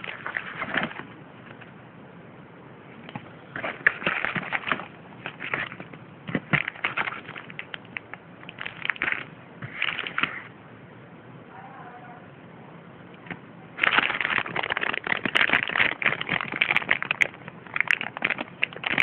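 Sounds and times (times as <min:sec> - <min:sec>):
plastic packaging crinkling: 0:00.0 - 0:01.7, 0:03.0 - 0:10.5, 0:13.2 - 0:19.0.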